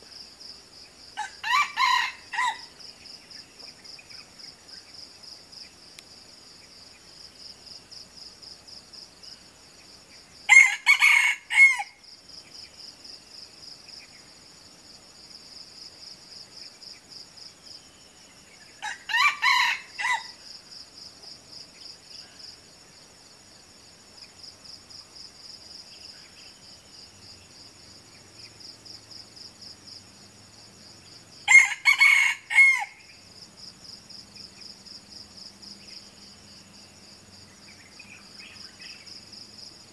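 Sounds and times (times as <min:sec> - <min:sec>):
high insect trill: 0:00.0 - 0:39.9
roosters crowing: 0:01.2 - 0:02.8, 0:10.5 - 0:12.0, 0:18.8 - 0:20.4, 0:31.4 - 0:33.0.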